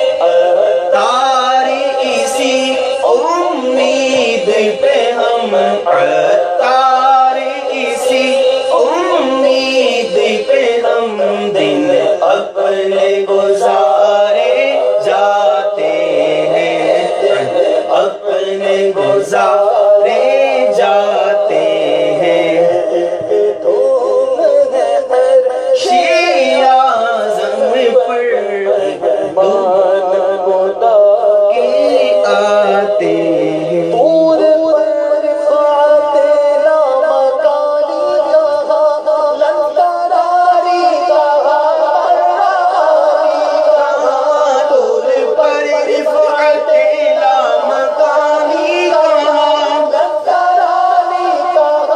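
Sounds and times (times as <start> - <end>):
man singing devotional song: 0.0 - 51.9.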